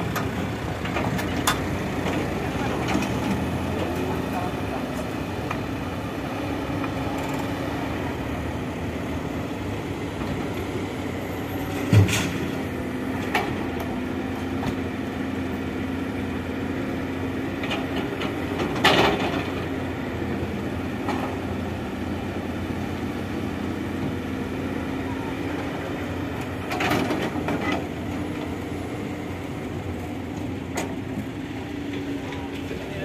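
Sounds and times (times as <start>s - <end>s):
heavy diesel machinery running: 0.0s - 33.0s.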